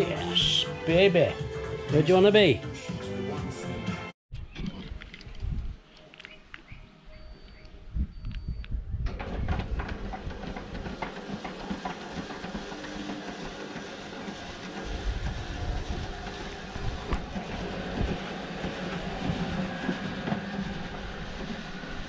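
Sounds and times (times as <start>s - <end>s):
roller garage door rattling: 9.1s - 22.0s.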